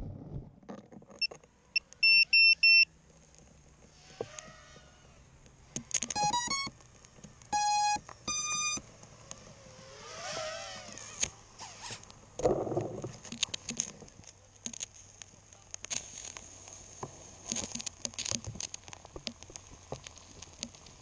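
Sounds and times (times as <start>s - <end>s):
electronic beeps: 1.2s - 2.9s, 6.0s - 6.7s, 7.5s - 8.8s
burning hiss and crackles: 2.9s - 21.0s.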